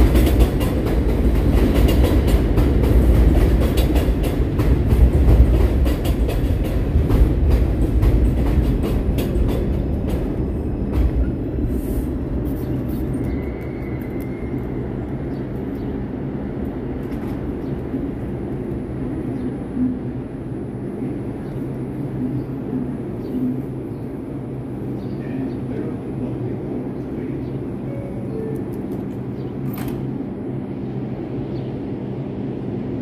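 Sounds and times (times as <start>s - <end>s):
train wheels clicking over rail joints: 0.0s - 11.3s
train humming: 0.0s - 33.0s
train rumbling: 0.0s - 33.0s.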